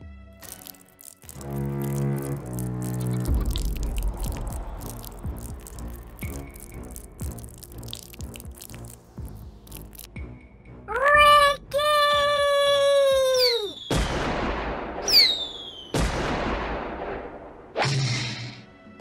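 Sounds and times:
person yelling: 10.9s - 13.8s
fireworks whistling and banging: 13.4s - 16.2s.

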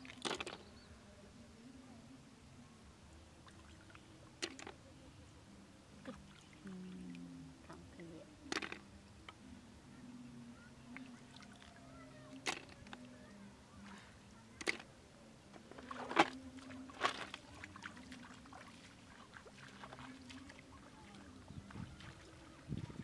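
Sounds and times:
faint low hum: 0.0s - 23.0s
feet splashing in water: 15.7s - 22.9s.

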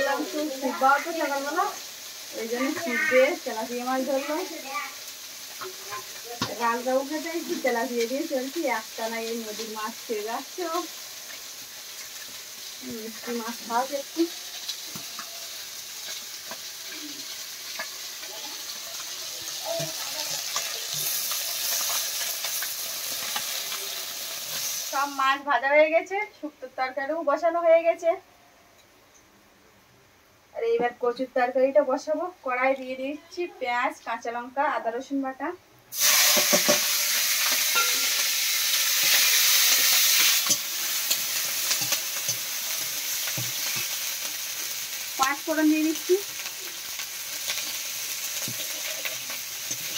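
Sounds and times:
fish sizzling in hot oil: 0.0s - 25.5s, 35.9s - 49.9s
metal spatula scraping a pan: 36.0s - 44.0s.

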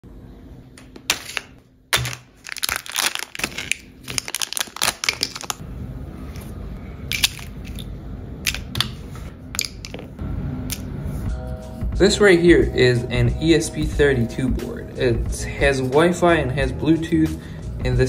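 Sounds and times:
plastic bags crinkling: 2.0s - 5.6s
steady low hum: 4.9s - 18.0s.

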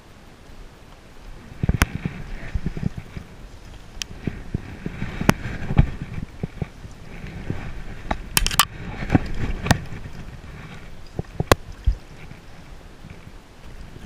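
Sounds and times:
steady background hiss: 0.0s - 14.0s
fly line clicks and knocks: 8.0s - 12.4s.

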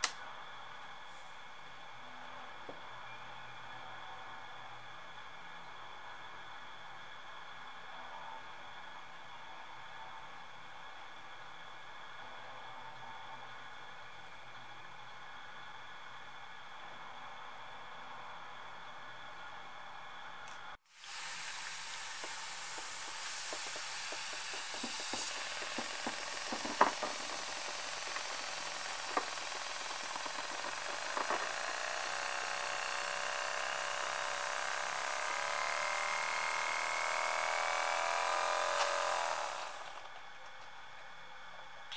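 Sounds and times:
compressed air hissing: 20.9s - 30.9s
motor buzzing rising in pitch: 21.1s - 40.1s.

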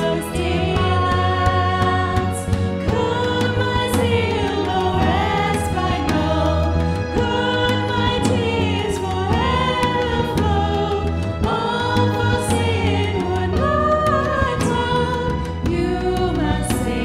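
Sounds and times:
bass guitar: 0.0s - 17.0s
drums: 0.0s - 17.0s
keyboards: 0.0s - 17.0s
women singing: 0.0s - 17.0s.

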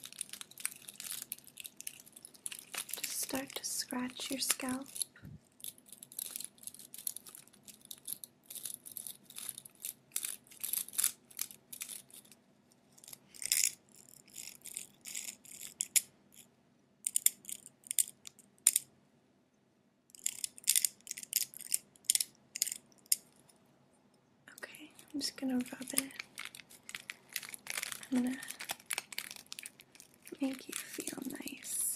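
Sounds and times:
scalp scratching: 13.0s - 16.0s.

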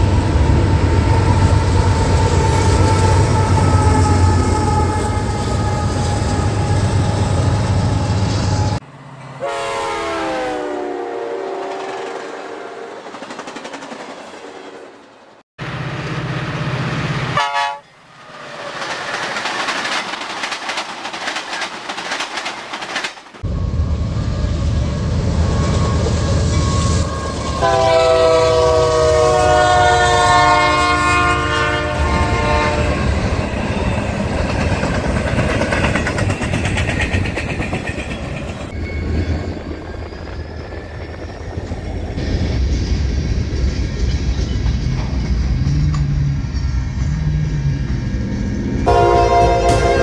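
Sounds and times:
freight train rumble and wheel clatter: 0.0s - 10.8s, 11.5s - 50.0s
locomotive horn chord: 1.7s - 12.9s, 17.3s - 17.9s, 26.6s - 33.1s, 48.9s - 50.0s.

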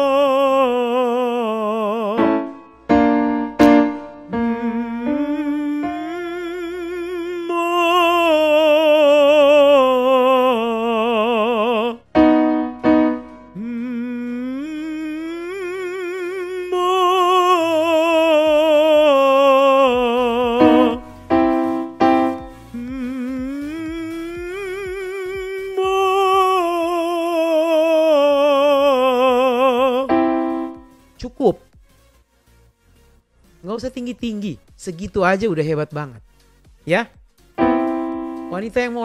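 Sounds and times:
man singing vocal exercise: 0.0s - 2.6s, 4.3s - 12.2s, 13.5s - 21.4s, 22.3s - 30.8s
short piano notes: 12.2s - 13.6s, 20.6s - 22.6s, 37.6s - 38.7s.

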